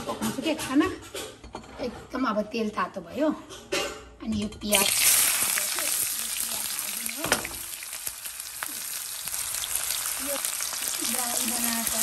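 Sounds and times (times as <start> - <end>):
onions sizzling in hot oil: 4.7 - 12.0.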